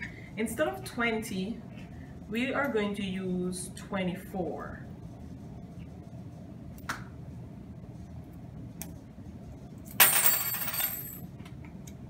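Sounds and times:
metal mass clattering and ringing: 10.0 - 11.2.

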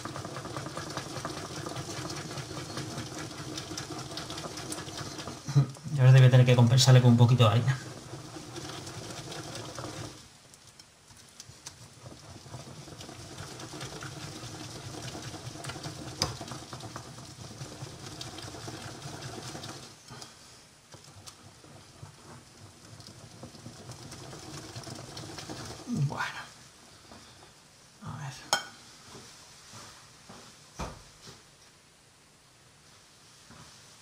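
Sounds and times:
hands mixing batter in bowl: 0.0 - 26.4
small irregular ticks: 7.8 - 20.3.

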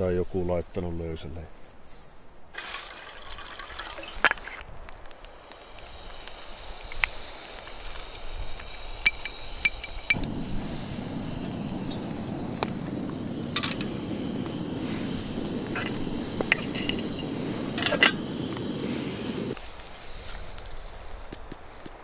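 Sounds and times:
water trickling: 2.6 - 4.3
low steady rush: 10.2 - 19.6.

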